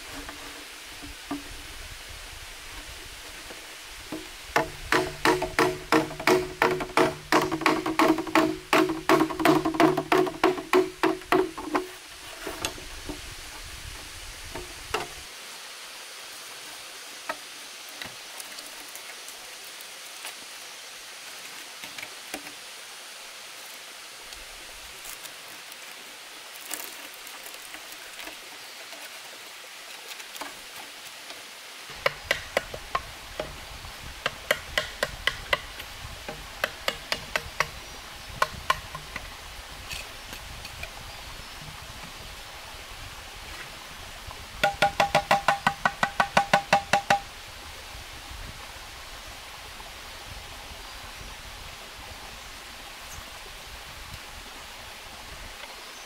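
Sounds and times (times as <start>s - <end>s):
waterfall rushing: 0.0s - 40.3s, 41.4s - 51.0s
bamboo knocking: 1.0s - 1.6s, 4.1s - 13.2s, 14.5s - 15.2s, 31.9s - 33.6s, 34.2s - 37.8s, 38.4s - 39.3s, 44.6s - 47.3s.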